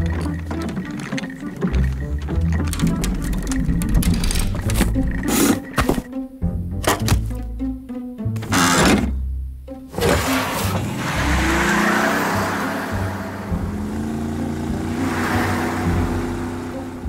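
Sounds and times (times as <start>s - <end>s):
background music: 0.0s - 17.0s
truck engine driving off: 9.9s - 17.0s.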